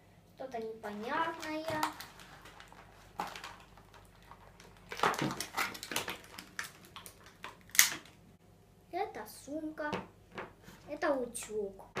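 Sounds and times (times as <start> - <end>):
plastic packaging crinkling: 0.6 - 8.2
plastic pieces clicking: 1.7 - 8.2.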